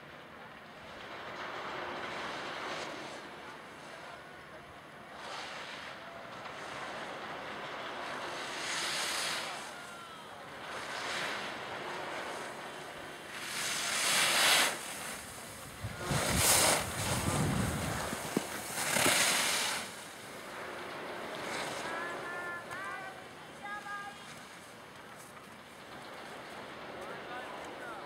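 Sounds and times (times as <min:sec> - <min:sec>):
ski edges scraping on snow: 0:08.4 - 0:09.7, 0:13.3 - 0:20.4, 0:21.3 - 0:24.7
wind buffeting microphone: 0:14.9 - 0:19.2.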